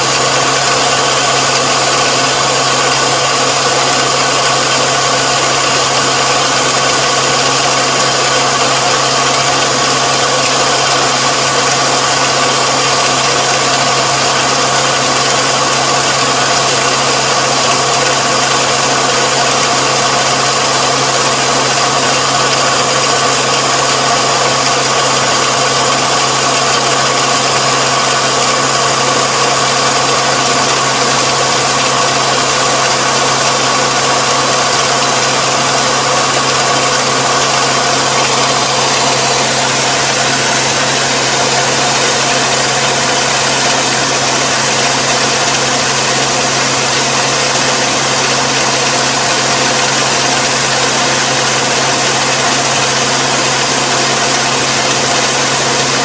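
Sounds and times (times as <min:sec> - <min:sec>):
combine harvester engine running: 0:00.0 - 0:56.0.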